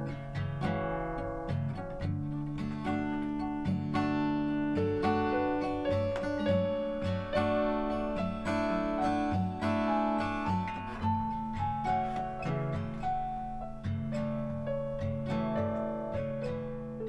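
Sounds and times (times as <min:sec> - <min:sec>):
acoustic guitar music: 0:00.0 - 0:17.0.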